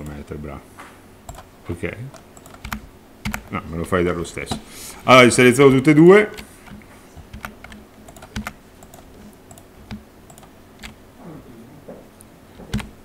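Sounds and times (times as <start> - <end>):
computer keyboard and mouse clicks: 1.3 - 1.5, 2.1 - 3.5, 6.3 - 11.0, 12.6 - 13.0.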